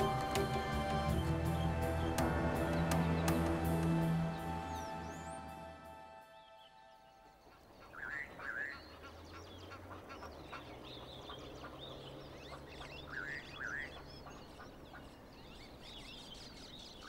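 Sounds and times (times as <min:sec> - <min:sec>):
two-note rising bird call: 0:00.0 - 0:07.4.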